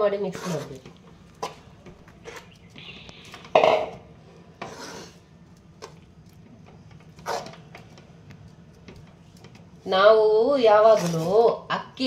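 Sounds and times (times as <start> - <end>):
hand scraping steel bowl: 0.2 - 0.9, 4.6 - 5.3, 10.8 - 11.5.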